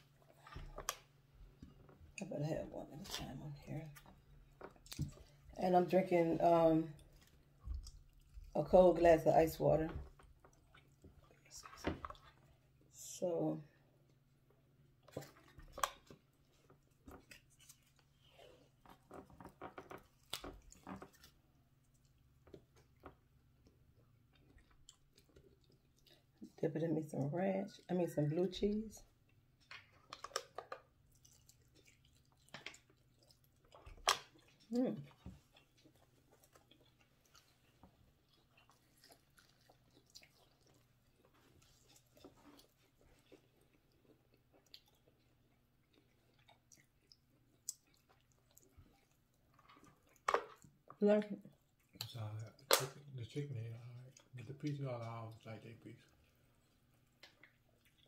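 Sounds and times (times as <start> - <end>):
faint chewing: 0.0 - 58.0.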